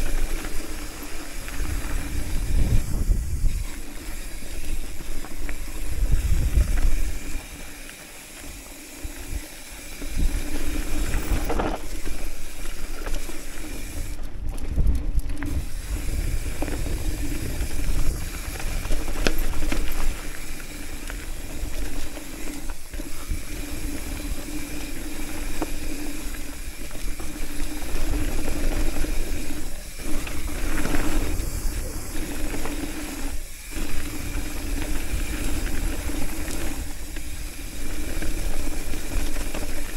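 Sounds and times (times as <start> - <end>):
bike rattling over bumps: 0.0 - 39.9
tyres rolling over dirt and stones: 0.0 - 39.9
wind on microphone: 1.2 - 7.4, 14.2 - 20.2, 26.2 - 39.9.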